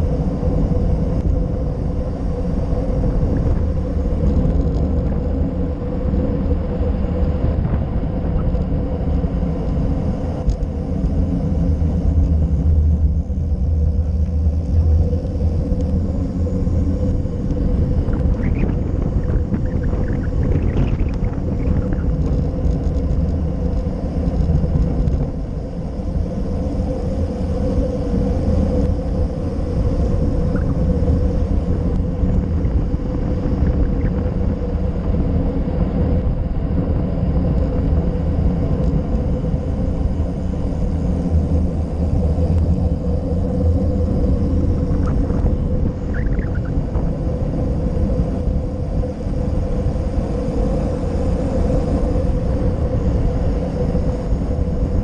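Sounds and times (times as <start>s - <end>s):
wind buffeting: 0.0s - 55.0s.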